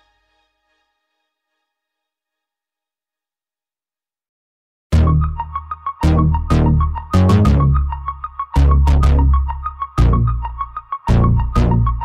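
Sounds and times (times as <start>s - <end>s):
music with deep bass: 5.0s - 12.0s.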